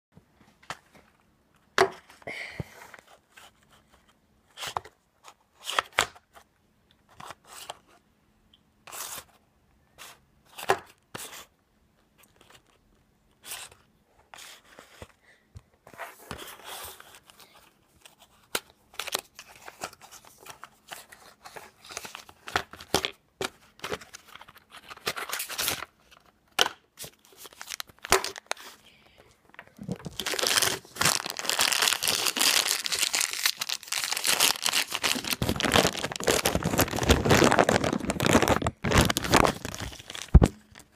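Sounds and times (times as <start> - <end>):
cardboard tearing and rustling: 29.8 - 40.8.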